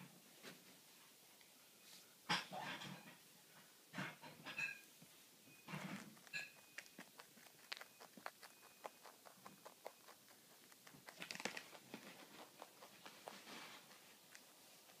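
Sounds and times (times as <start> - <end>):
rabbit crunching pellets: 1.8 - 15.0
rustle: 11.1 - 15.0.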